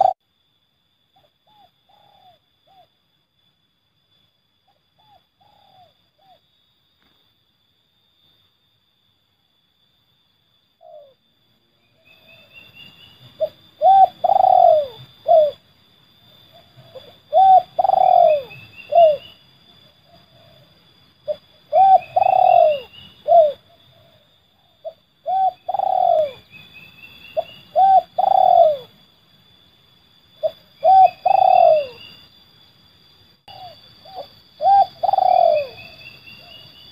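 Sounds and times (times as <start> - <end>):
dove cooing: 0.0 - 0.2, 1.4 - 2.9, 5.0 - 6.4, 10.8 - 11.2, 13.2 - 15.6, 16.5 - 19.4, 20.1 - 20.7, 21.3 - 26.6, 27.4 - 29.0, 30.4 - 32.2, 33.5 - 36.6.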